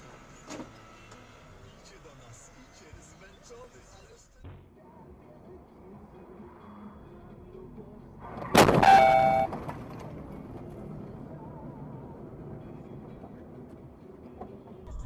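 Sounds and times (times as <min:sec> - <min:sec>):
road and engine noise: 0:00.0 - 0:15.0
car collision impact: 0:08.4 - 0:10.0
ringing tone: 0:08.8 - 0:09.5.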